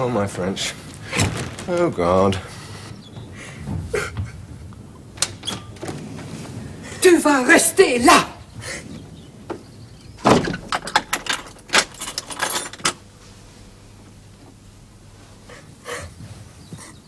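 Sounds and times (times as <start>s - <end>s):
keys jangling: 10.6s - 13.0s.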